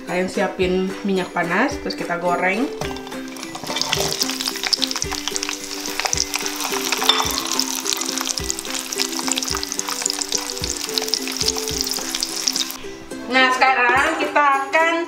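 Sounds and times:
background music: 0:00.0 - 0:15.0
oil sizzling and crackling: 0:02.8 - 0:12.9.

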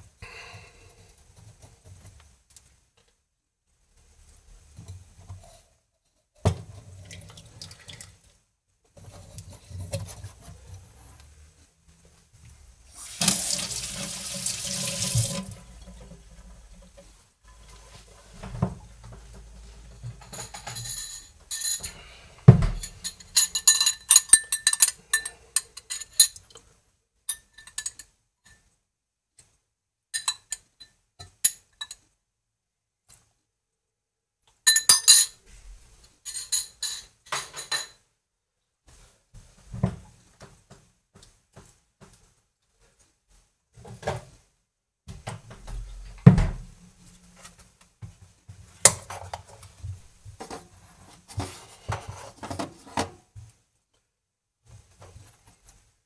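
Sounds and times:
liquid pouring into shaker: 0:13.0 - 0:15.6.

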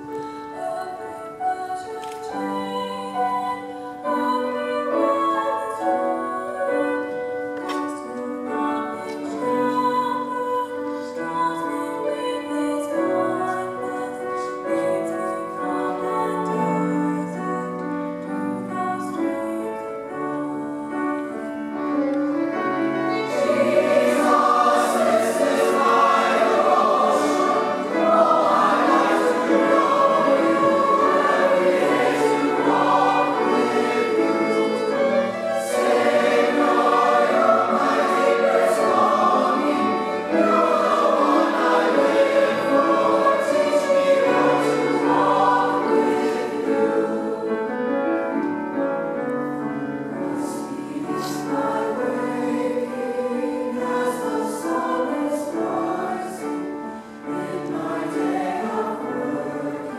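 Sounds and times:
youth choir singing: 0:00.7 - 0:07.2, 0:22.8 - 0:48.1, 0:50.2 - 0:59.9.

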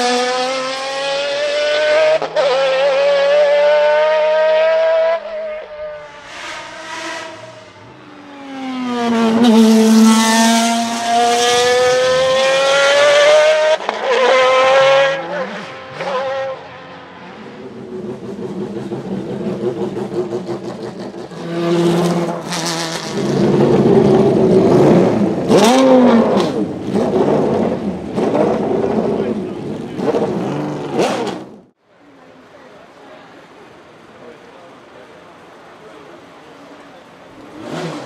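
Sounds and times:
race car accelerating: 0:00.0 - 0:31.7, 0:35.9 - 0:38.0
racing engine revving in blips: 0:00.0 - 0:31.7.

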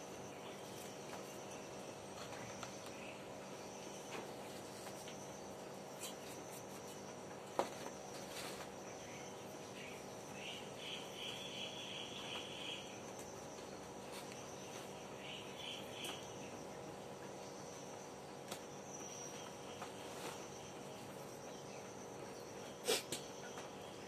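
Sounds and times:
faint insect chirping: 0:00.0 - 0:24.0
steady low hum: 0:00.0 - 0:24.0.

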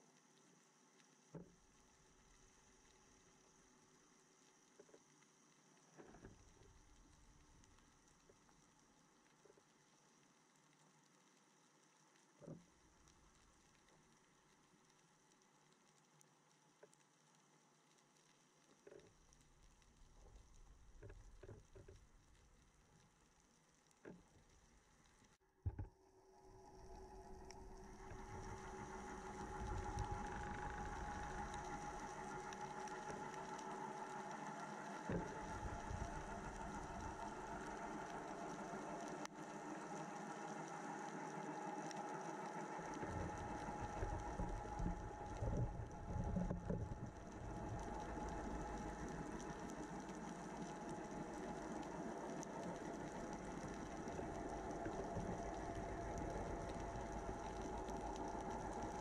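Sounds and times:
distant boat motor underwater: 0:00.6 - 0:59.0.

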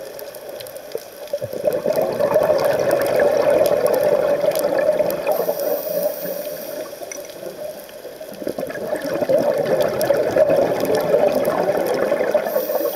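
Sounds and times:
underwater bubbles rushing: 0:00.0 - 0:12.9.

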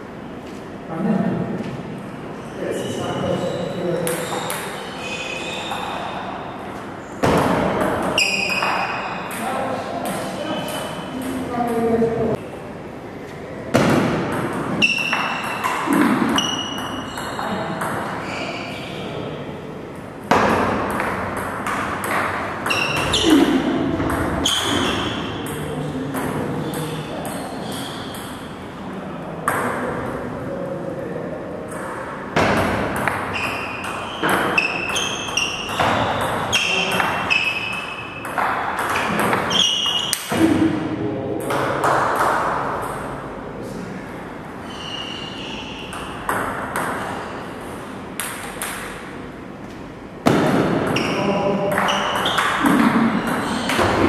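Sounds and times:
table tennis ball hits: 0:07.2 - 0:11.8, 0:13.7 - 0:18.2, 0:20.2 - 0:28.4, 0:31.7 - 0:40.7, 0:41.4 - 0:43.1, 0:45.8 - 0:47.2, 0:48.2 - 0:49.1, 0:50.2 - 0:54.0
ball bouncing on table: 0:07.2 - 0:11.9, 0:24.0 - 0:27.4, 0:31.7 - 0:40.6, 0:45.9 - 0:47.1, 0:50.2 - 0:54.0.

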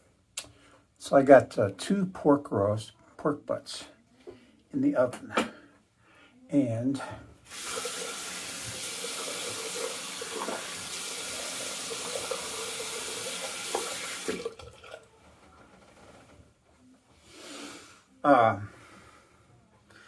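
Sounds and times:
faucet running into basin: 0:07.5 - 0:15.1.

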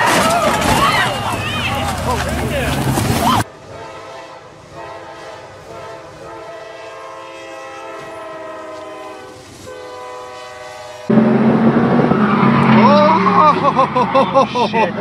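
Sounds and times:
locomotive air horn chord: 0:03.6 - 0:11.7.

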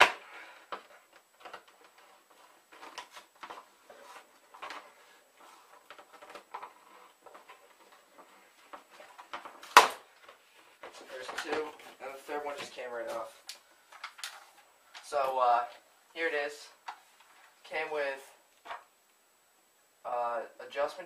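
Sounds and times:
loud sharp snap: 0:09.7 - 0:10.0.

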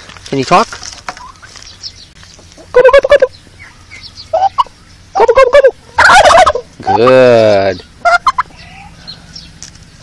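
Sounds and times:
turkey gobbling: 0:01.1 - 0:09.3.

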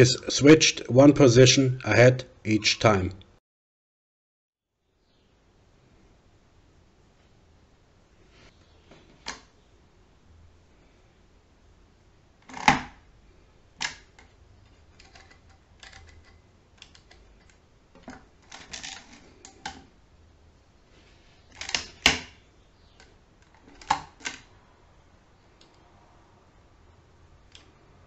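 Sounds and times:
mechanical calculator clicking: 0:15.0 - 0:17.6.

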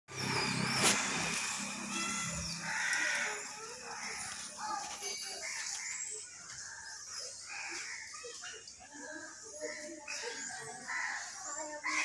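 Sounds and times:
vehicle engine hum passing: 0:00.1 - 0:04.6.

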